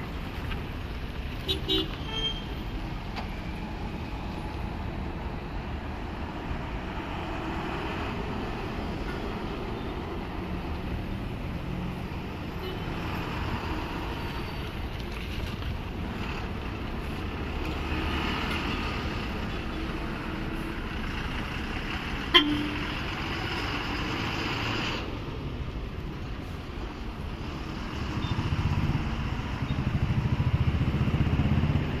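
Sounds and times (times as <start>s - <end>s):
bus and vehicle engines running: 0.0s - 32.0s
vehicle horns tooting: 1.5s - 2.6s, 22.3s - 22.8s
heavy engine rumble: 2.7s - 32.0s.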